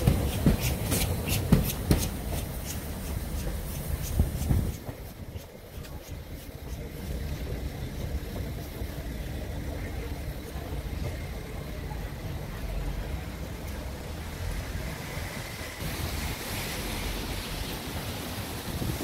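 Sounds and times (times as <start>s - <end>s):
steam locomotive rumbling: 0.0s - 19.0s
wind buffeting microphone: 3.9s - 6.4s, 18.4s - 19.0s.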